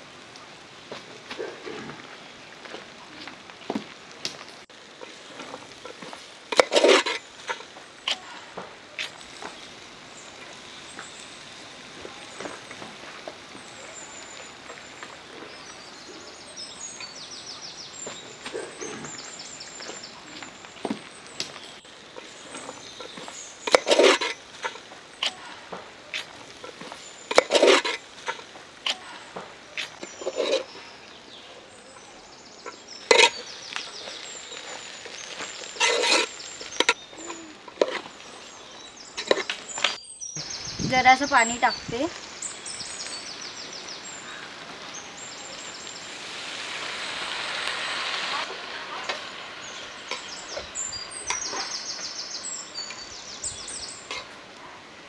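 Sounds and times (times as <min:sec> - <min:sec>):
metal spatula scraping pot: 0:05.0 - 0:08.2, 0:22.2 - 0:25.4, 0:26.2 - 0:29.0, 0:29.8 - 0:30.8, 0:32.7 - 0:38.2.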